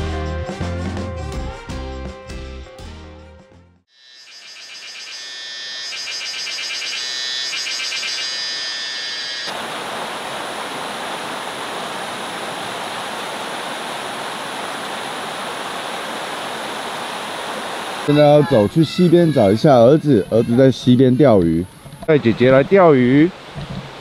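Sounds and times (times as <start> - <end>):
stream rushing: 9.5 - 21.3, 22.1 - 24.0.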